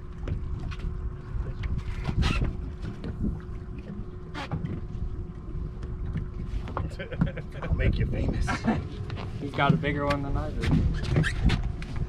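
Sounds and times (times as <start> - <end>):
wind buffeting microphone: 4.6 - 12.0.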